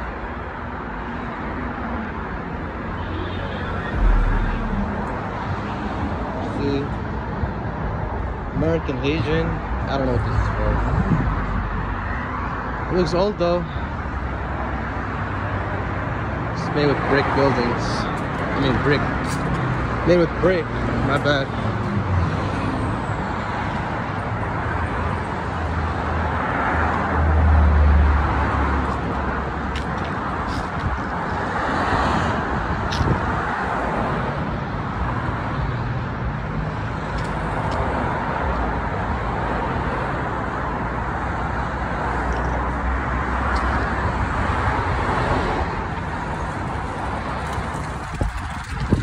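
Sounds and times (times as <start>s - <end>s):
road traffic noise: 0.0s - 49.0s
vehicle passing: 3.7s - 6.4s.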